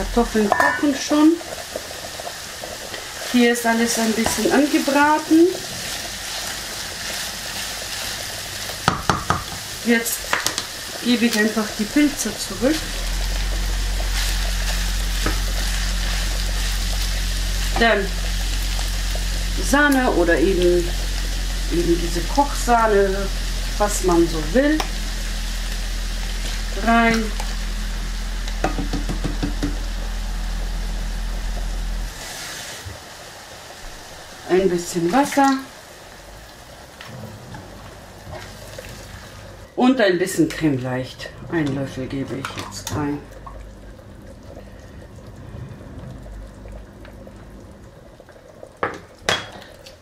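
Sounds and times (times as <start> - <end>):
steady low hum: 0.0 - 5.3, 9.7 - 32.3, 41.0 - 48.6
meat and mushrooms frying: 0.0 - 50.0
spoon knocking against pan: 8.8 - 9.6, 28.6 - 29.8.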